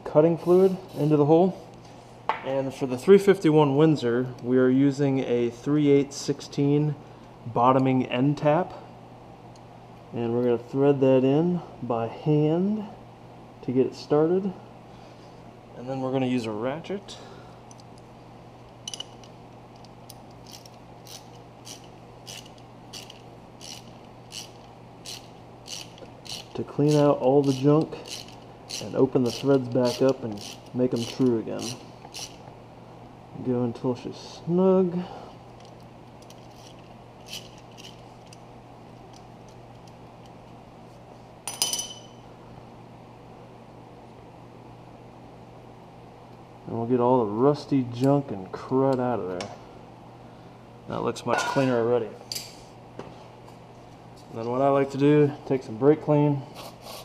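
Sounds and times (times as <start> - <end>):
low steady hum: 0.0 - 57.0
ratchet pawl clicking: 20.4 - 32.4, 36.2 - 38.4
sharp metal clink: 41.5 - 42.2.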